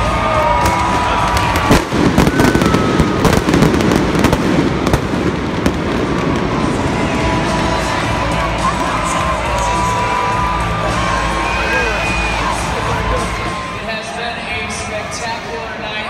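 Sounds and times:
pyrotechnics cracking and popping: 0.3s - 10.3s.

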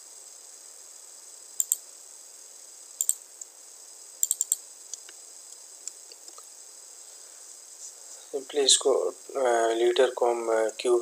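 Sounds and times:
faint steady hiss: 0.0s - 11.0s
computer mouse clicks: 1.6s - 1.8s, 3.0s - 3.2s, 4.2s - 5.2s.

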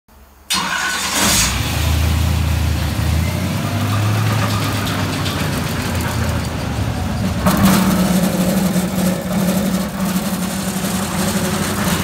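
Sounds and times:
engine starting and idling: 0.5s - 3.4s.

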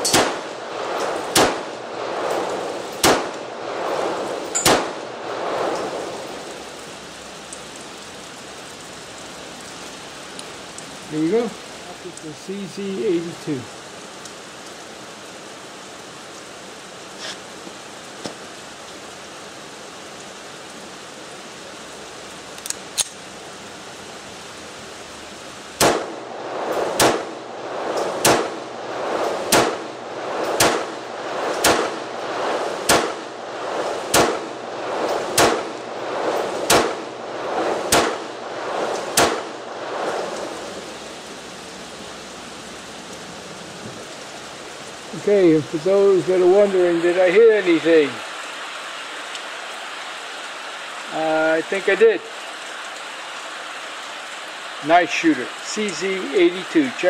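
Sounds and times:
pistol shots with echo: 0.0s - 0.5s, 1.3s - 1.7s, 3.0s - 3.4s, 4.6s - 5.0s, 25.8s - 26.2s, 27.0s - 27.4s, 28.2s - 28.6s, 29.5s - 29.9s, 30.6s - 31.0s, 31.6s - 32.0s, 32.9s - 33.2s, 34.1s - 34.5s, 35.4s - 35.7s, 36.7s - 37.0s, 37.9s - 38.3s, 39.2s - 39.5s
rain hissing: 0.0s - 57.0s.

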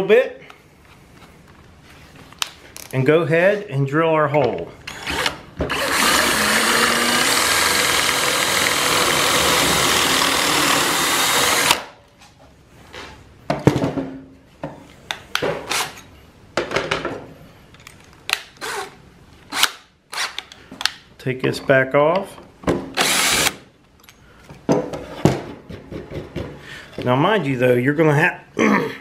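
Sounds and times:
power drill boring into wood: 4.9s - 11.8s, 23.0s - 23.6s.

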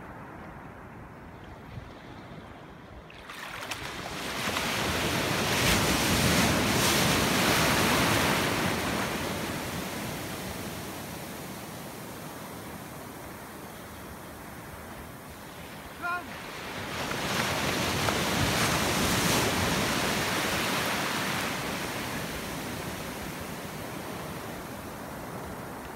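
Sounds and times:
wave breaking in shallows: 3.1s - 12.1s.

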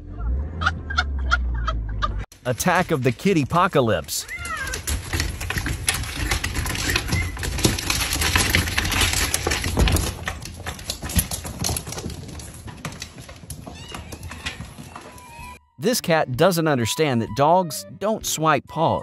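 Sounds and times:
cat claws scrabbling on wood: 2.6s - 15.4s.

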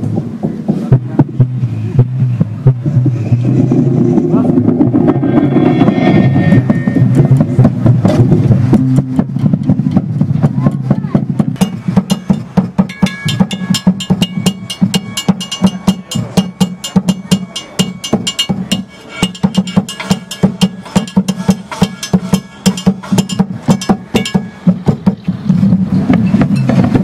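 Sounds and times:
low hum: 0.0s - 27.0s
sticks striking tires and objects: 6.5s - 27.0s.

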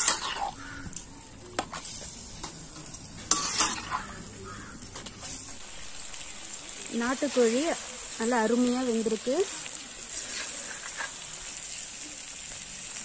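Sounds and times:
metal ladle scraping a pan: 0.0s - 1.0s, 1.6s - 5.6s, 10.1s - 11.6s
masala sizzling: 0.0s - 13.0s.

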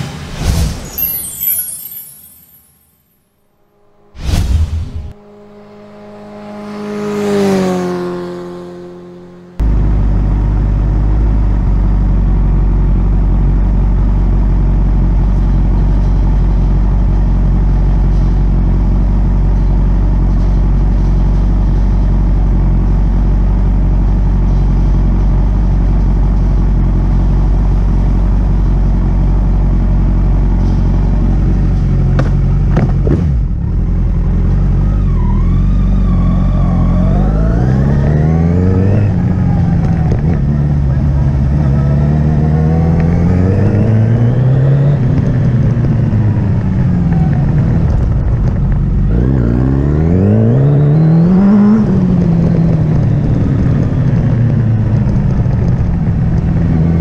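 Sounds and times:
motorcycle revving and pulling away: 5.1s - 57.0s.

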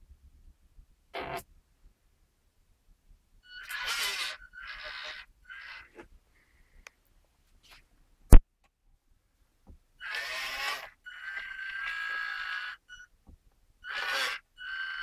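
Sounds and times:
small electric motor whining: 3.5s - 6.0s, 10.0s - 13.1s, 13.8s - 15.0s.

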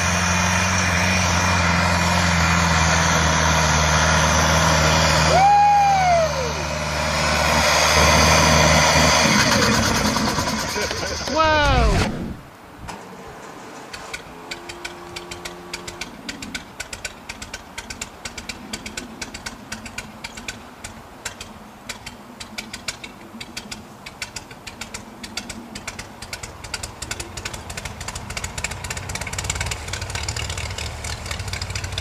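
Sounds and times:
tractor engine idling: 12.6s - 32.0s
fast even ticking knock: 14.7s - 31.9s.

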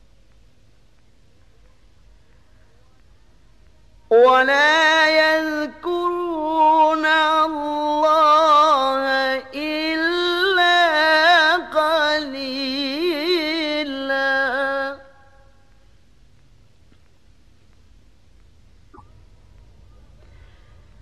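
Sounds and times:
man chanting recitation: 4.1s - 15.1s.

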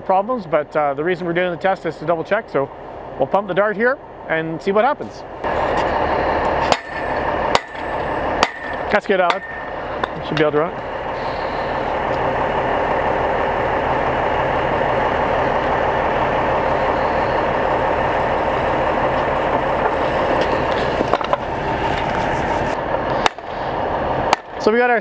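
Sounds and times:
pump engine running: 0.0s - 24.7s
sharp knocks: 6.6s - 10.2s.

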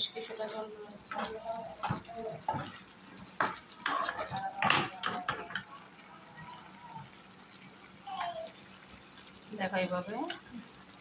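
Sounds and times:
metal spatula scraping a pan: 0.0s - 5.6s.

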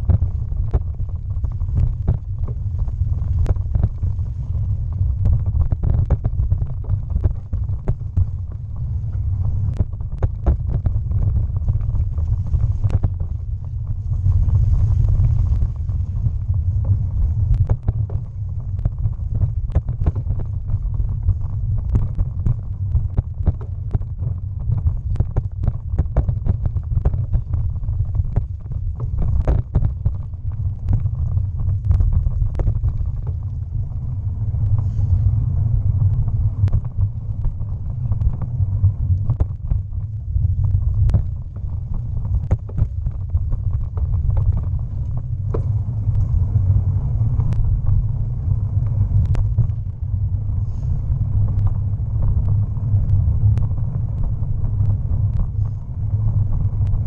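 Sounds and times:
bicycle rolling rumble: 0.0s - 57.0s
bike knocks and rattles: 42.5s - 46.5s.

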